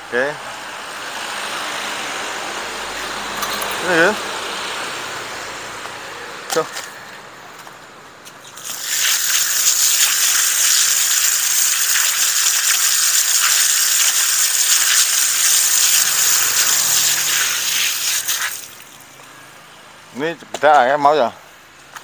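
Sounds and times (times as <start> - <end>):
water gushing onto concrete: 8.6 - 19.1.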